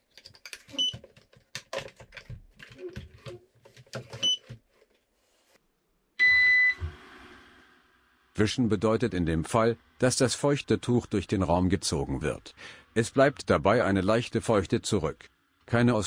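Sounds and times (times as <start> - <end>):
plastic clicks and knocks: 0.1 - 4.6
loud beep: 6.2 - 6.9
robot vacuum beeps: 6.2 - 6.9.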